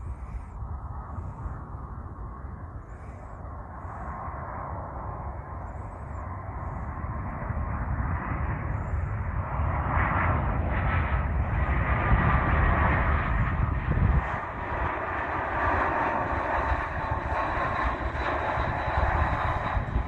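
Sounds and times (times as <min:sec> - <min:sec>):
jet engines rumbling: 0:00.0 - 0:20.0
thin engine whine: 0:04.7 - 0:20.0.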